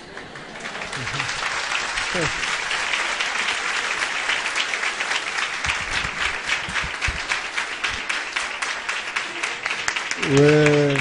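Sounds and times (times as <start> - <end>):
audience applauding: 0.0 - 11.0.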